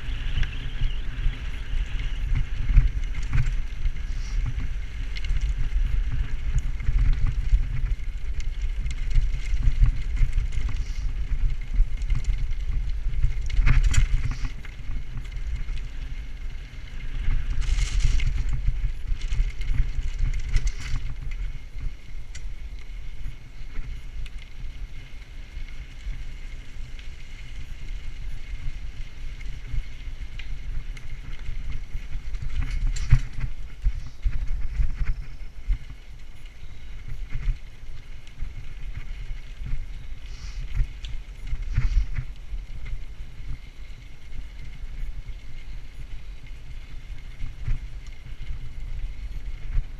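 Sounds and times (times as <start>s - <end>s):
bicycle frame rattling: 0.0s - 49.9s
bicycle tyres rumbling on gravel: 0.0s - 49.9s.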